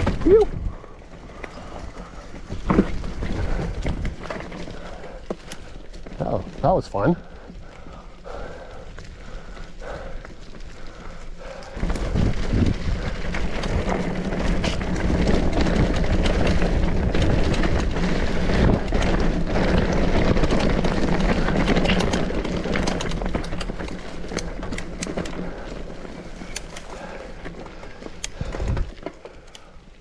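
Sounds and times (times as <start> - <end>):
bike rattles and clicks: 0.0 - 30.0
bike tyres rumbling on trail: 0.0 - 30.0
wind rushing over microphone: 11.8 - 23.8, 28.3 - 29.0.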